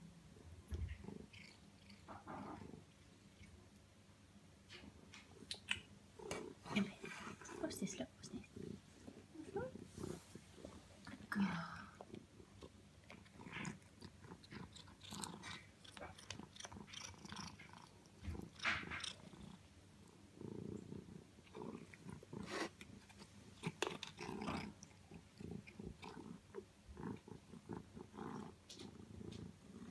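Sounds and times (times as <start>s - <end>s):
cat chewing crunchy food: 12.0s - 19.6s, 21.4s - 29.9s.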